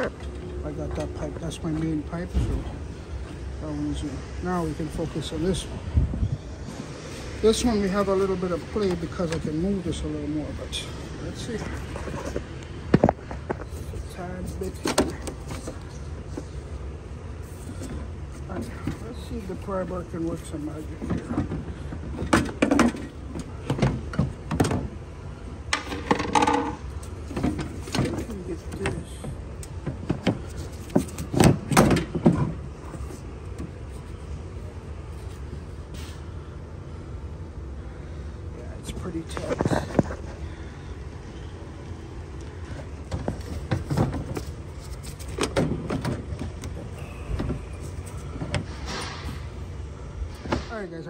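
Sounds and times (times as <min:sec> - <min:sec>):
steady low rumble: 0:00.0 - 0:22.3
knocks and scrapes of metal parts: 0:20.9 - 0:25.0, 0:25.7 - 0:34.1, 0:42.6 - 0:49.6.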